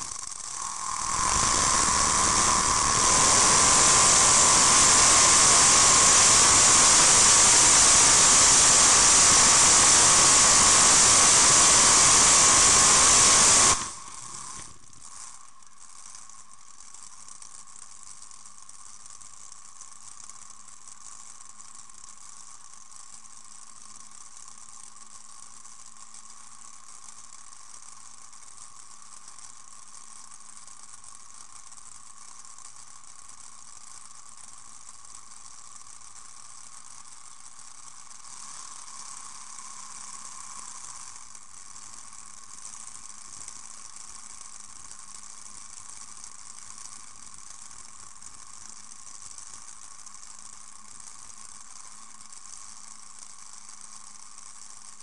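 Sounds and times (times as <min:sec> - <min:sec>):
high whine: 0:00.0 - 0:14.7.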